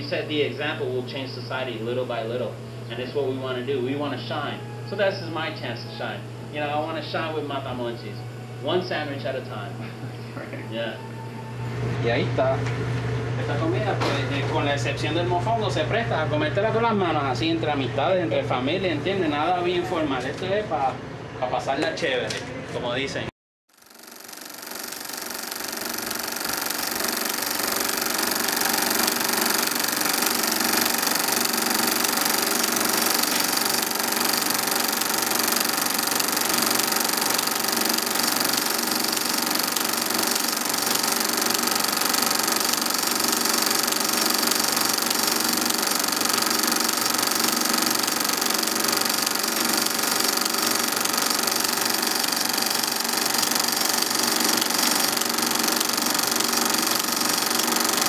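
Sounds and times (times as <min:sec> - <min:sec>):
film projector clattering: 0:23.7 - 0:58.0.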